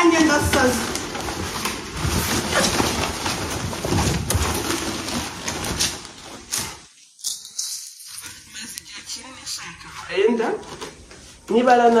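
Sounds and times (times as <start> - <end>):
plastic packaging crackling: 0.0 - 7.2.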